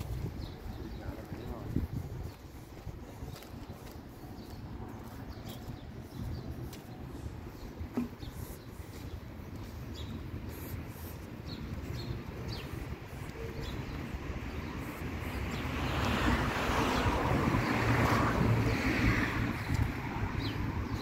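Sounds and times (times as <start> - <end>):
low traffic rumble: 0.0 - 21.0.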